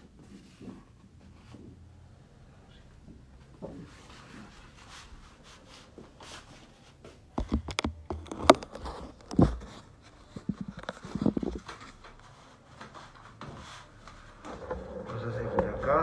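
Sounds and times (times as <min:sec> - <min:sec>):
sharp clicks and knocks: 0:07.4 - 0:09.6.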